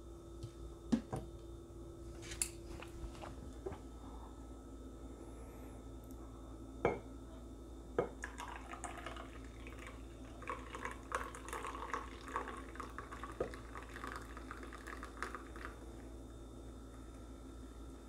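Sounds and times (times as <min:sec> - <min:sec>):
milk foam pouring: 0:08.2 - 0:16.0.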